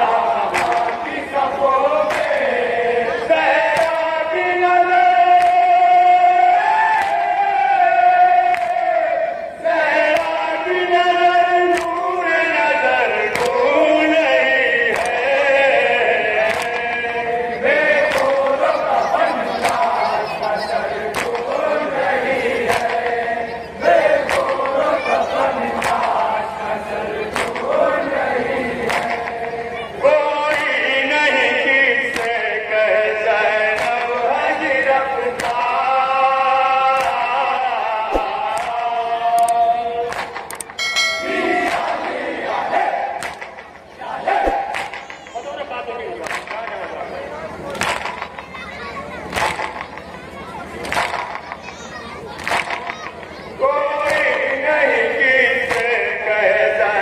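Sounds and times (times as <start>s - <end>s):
men chanting a lament: 0.0s - 48.3s, 49.3s - 57.0s
chest-beating slaps: 0.5s - 1.0s, 2.1s - 2.5s, 3.7s - 4.0s, 5.3s - 5.6s, 21.1s - 21.6s, 25.8s - 26.2s, 27.3s - 27.7s, 28.8s - 29.6s, 38.1s - 38.8s, 39.4s - 40.8s, 41.6s - 42.2s, 43.2s - 45.6s, 46.2s - 47.0s, 47.7s - 48.4s, 49.3s - 50.2s, 50.8s - 51.7s, 52.4s - 53.3s.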